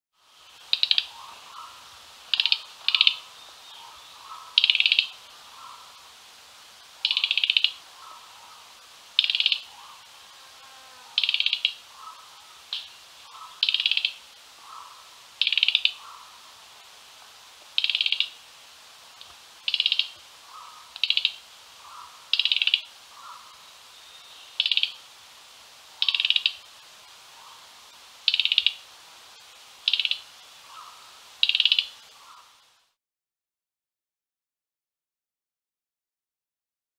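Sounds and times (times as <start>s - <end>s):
insects hissing: 0.2s - 32.9s
other birds calling softly: 0.4s - 32.6s
bird chattering calls: 0.7s - 6.0s, 7.0s - 8.6s, 9.2s - 10.0s, 11.0s - 16.4s, 17.8s - 18.4s, 19.7s - 25.0s, 26.0s - 26.6s, 28.3s - 28.8s, 29.8s - 32.5s.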